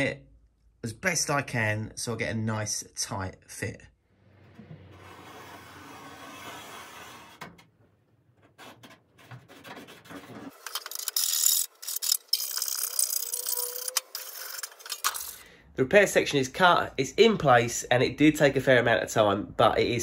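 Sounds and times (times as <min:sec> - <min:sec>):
scratching and handling: 0:08.3 - 0:15.4.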